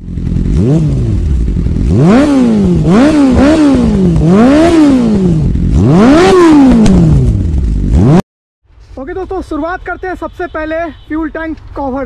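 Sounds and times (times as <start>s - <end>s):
motorcycle engine revving: 0.0s - 8.2s.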